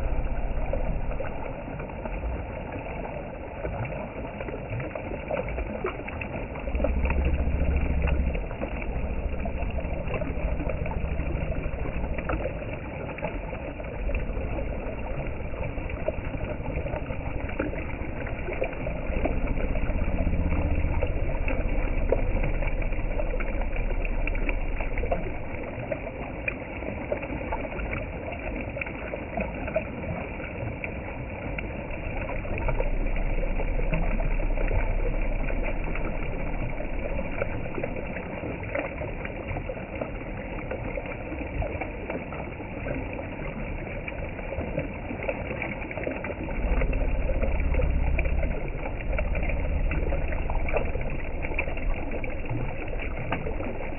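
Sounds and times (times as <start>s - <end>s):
low rumble: 0.0s - 41.2s, 43.4s - 53.9s.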